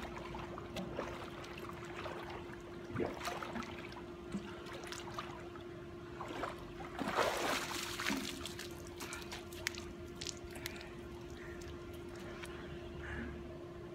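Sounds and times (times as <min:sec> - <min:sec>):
steady hum: 0:00.0 - 0:13.9
water dripping: 0:07.7 - 0:12.5.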